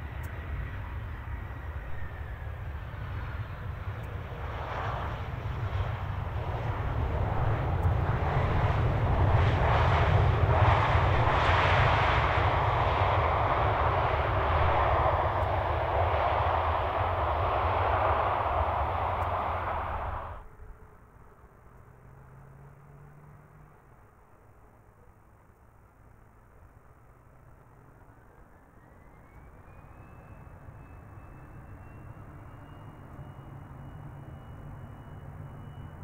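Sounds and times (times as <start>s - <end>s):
jet engines roaring on landing: 0.0s - 20.5s, 28.6s - 36.0s.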